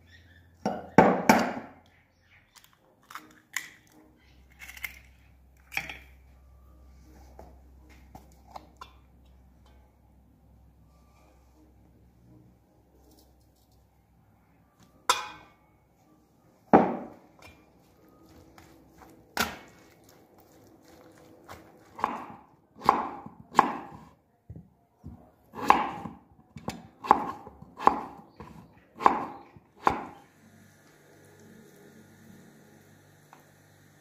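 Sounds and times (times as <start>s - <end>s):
knife chopping on wooden board: 20.9s - 24.1s, 25.1s - 30.2s.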